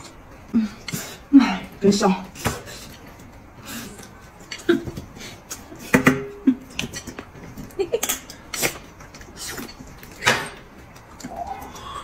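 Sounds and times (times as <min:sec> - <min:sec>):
breathy noise: 0:11.2 - 0:12.0.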